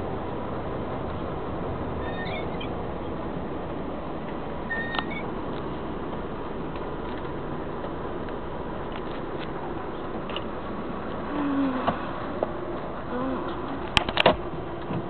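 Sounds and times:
truck cab driving noise: 0.0 - 15.0
short high squeaks: 2.0 - 2.8, 4.7 - 5.3.

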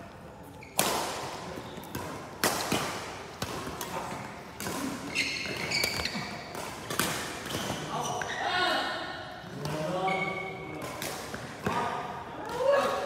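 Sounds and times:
shoes squeaking on floor: 0.4 - 0.9, 5.0 - 6.6, 7.4 - 8.6, 10.0 - 10.6
racket hitting shuttlecock: 0.7 - 7.9.

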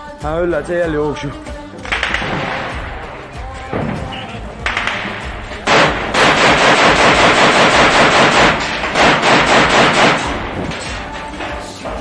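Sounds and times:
assault rifle automatic fire: 1.8 - 3.1, 4.1 - 10.6.

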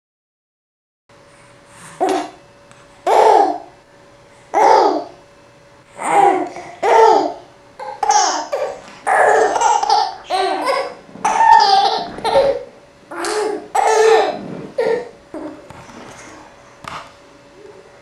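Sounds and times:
baby laughing and babbling: 3.0 - 3.7, 4.5 - 5.2, 6.0 - 15.6.

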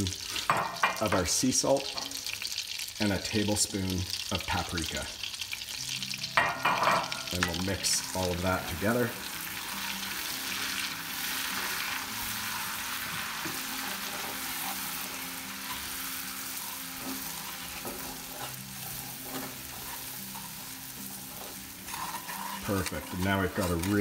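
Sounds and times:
butter sizzling in skillet: 0.0 - 24.0
wooden spoon scraping pan: 16.6 - 24.0.

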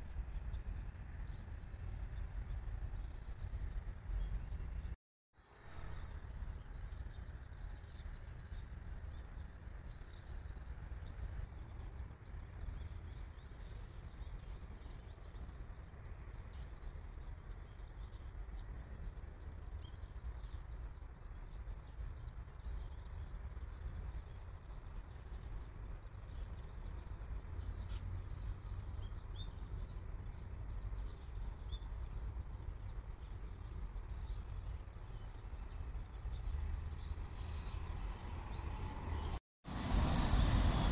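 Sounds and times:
steady low rumble: 30.1 - 40.9.

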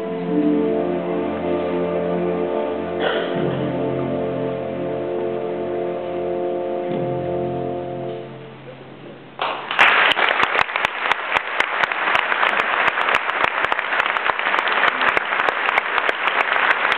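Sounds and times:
audience applause: 9.4 - 16.9.

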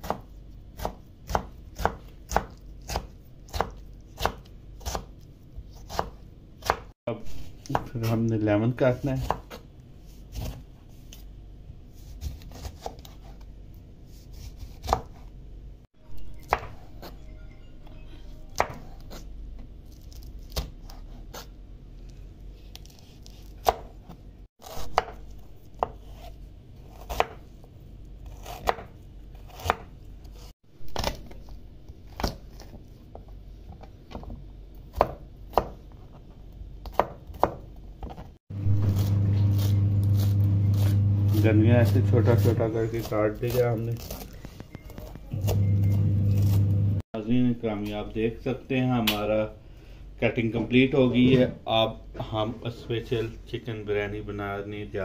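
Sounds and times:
knife chopping on plastic board: 0.0 - 6.9, 14.3 - 15.2, 22.8 - 26.3, 26.9 - 27.4, 28.3 - 29.9, 34.9 - 35.8, 36.8 - 41.0
loud low hum: 38.5 - 42.6.

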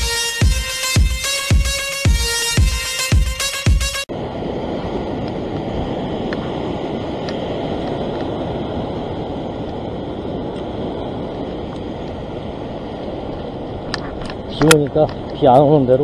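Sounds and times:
surf breaking over rocks: 4.1 - 16.0
wind buffeting microphone: 4.1 - 16.0.

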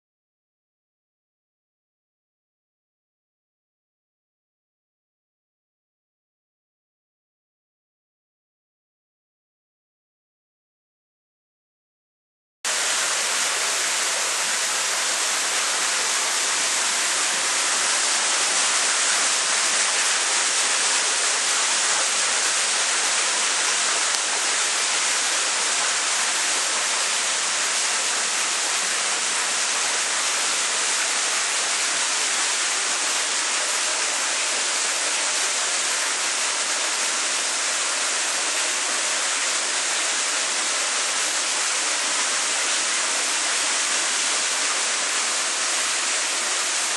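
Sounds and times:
rushing water hiss: 12.7 - 46.9.

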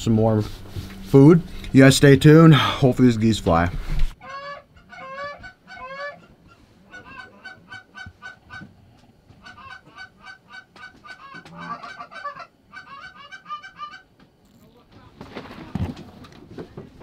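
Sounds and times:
geese honking: 4.2 - 8.7, 9.4 - 14.1.

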